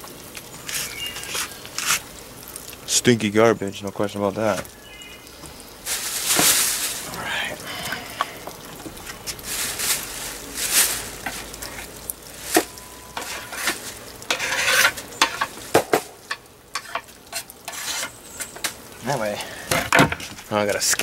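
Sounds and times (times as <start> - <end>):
plastic bag rustling: 5.5 - 16.2.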